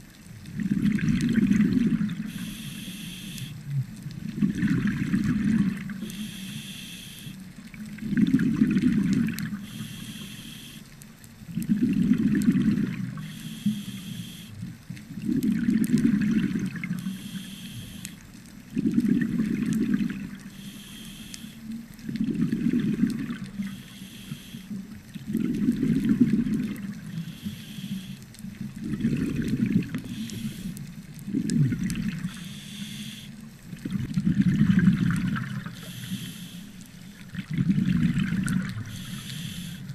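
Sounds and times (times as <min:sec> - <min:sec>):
exhaled bubbles burbling: 0:00.4 - 0:02.5, 0:03.8 - 0:06.1, 0:07.7 - 0:10.0, 0:11.5 - 0:17.2, 0:18.7 - 0:20.6, 0:22.0 - 0:23.8, 0:24.8 - 0:27.4, 0:28.4 - 0:32.6, 0:33.2 - 0:36.0, 0:37.1 - 0:39.9
regulator inhalation hiss: 0:02.2 - 0:03.6, 0:06.0 - 0:07.4, 0:09.6 - 0:10.9, 0:13.2 - 0:14.6, 0:17.0 - 0:18.2, 0:20.5 - 0:21.7, 0:23.6 - 0:24.8, 0:27.1 - 0:28.2, 0:30.0 - 0:30.8, 0:32.3 - 0:33.4, 0:35.7 - 0:36.8, 0:38.8 - 0:39.9.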